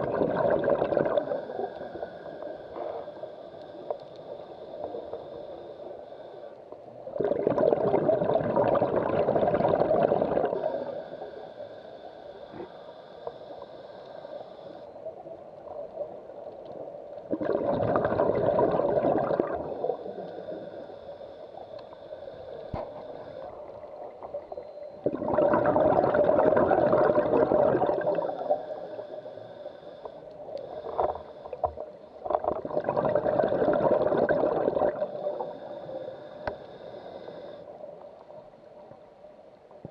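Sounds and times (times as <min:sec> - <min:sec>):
exhaled bubbles rushing underwater: 0:00.0 - 0:03.3, 0:07.0 - 0:11.2, 0:17.2 - 0:20.9, 0:22.6 - 0:29.5, 0:30.1 - 0:36.5
regulator hiss: 0:01.1 - 0:07.1, 0:10.5 - 0:17.2, 0:19.2 - 0:24.9, 0:27.9 - 0:32.2, 0:34.9 - 0:39.4.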